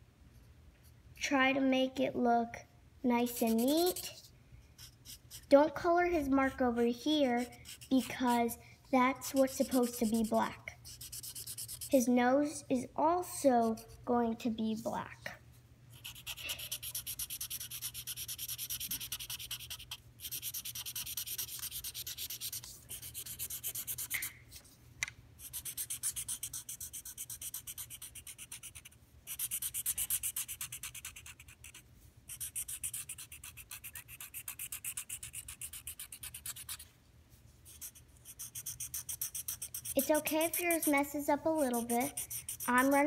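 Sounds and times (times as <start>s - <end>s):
marker scribbling on paper: 3.2s - 5.6s, 7.1s - 8.6s, 9.2s - 12.1s, 16.0s - 24.6s, 25.4s - 36.8s, 37.7s - 43.0s.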